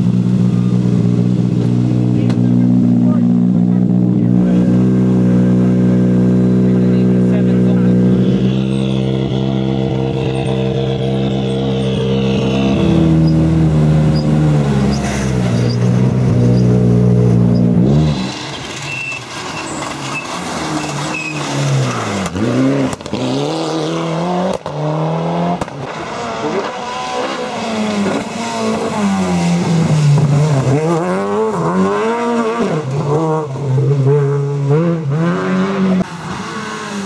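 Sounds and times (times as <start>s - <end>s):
rally car approaching: 0.0s - 37.0s
rally car engine revving: 0.0s - 37.0s
rally car engine running: 0.0s - 37.0s.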